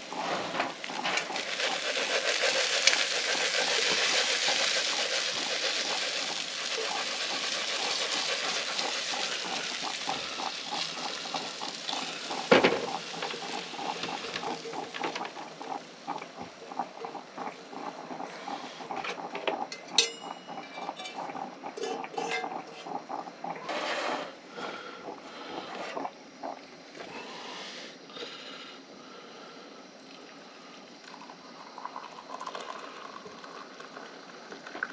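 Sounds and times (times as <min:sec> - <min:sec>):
food sizzling in frying pan: 0:00.8 - 0:15.6
spatula scraping pan and plate: 0:21.8 - 0:22.8, 0:23.6 - 0:24.4.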